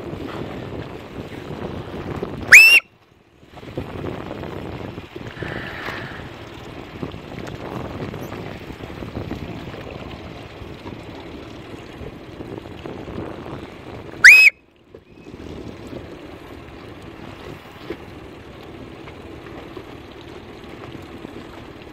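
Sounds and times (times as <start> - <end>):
boat and water noise: 0.0 - 21.9
loud whistle blast: 2.5 - 2.9, 14.2 - 14.6.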